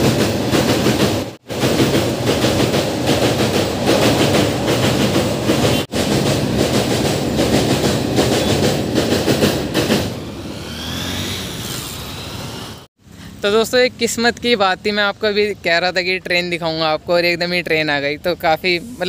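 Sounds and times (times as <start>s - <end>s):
freight train clattering across bridge: 0.0s - 11.2s.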